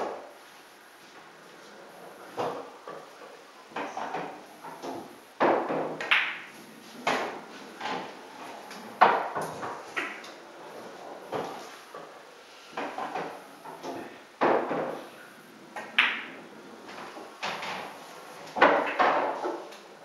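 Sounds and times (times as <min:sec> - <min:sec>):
pool balls clacking: 0:00.0 - 0:20.0
cue tip striking ball: 0:03.8 - 0:08.1, 0:15.8 - 0:17.5, 0:18.5 - 0:19.7.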